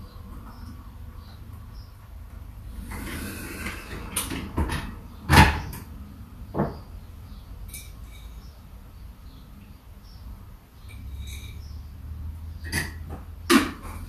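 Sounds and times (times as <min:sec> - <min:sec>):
kitchen items clicking and knocking: 0:12.6 - 0:14.0.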